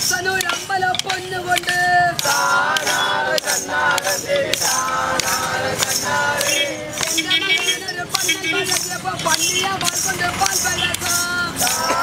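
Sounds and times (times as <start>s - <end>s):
bamboo sticks striking beat: 0.0s - 12.0s
crowd singing folk song: 0.0s - 12.0s.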